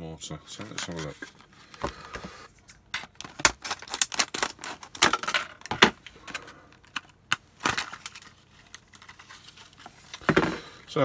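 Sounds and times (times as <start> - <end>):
plastic crackling: 2.9 - 10.4.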